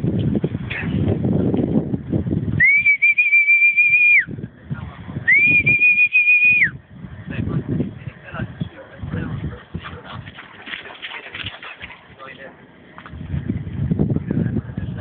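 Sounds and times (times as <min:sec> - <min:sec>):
long high whistles: 0:02.6 - 0:04.3, 0:05.3 - 0:06.8.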